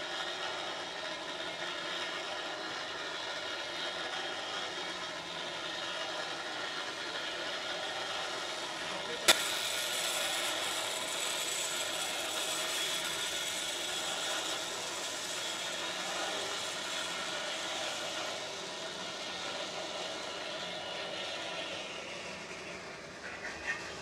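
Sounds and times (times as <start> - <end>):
bicycle running on steel cable: 0.0 - 24.0
sharp click: 9.3 - 9.6.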